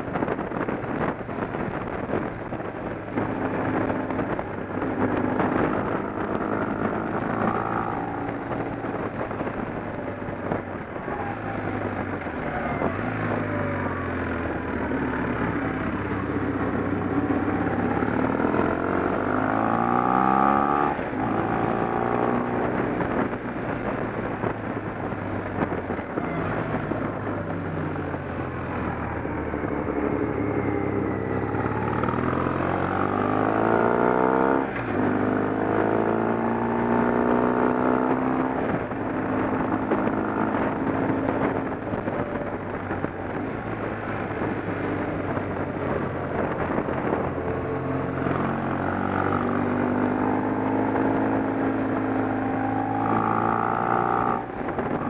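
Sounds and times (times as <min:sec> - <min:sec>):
vehicle engine running: 0:34.7 - 0:55.0.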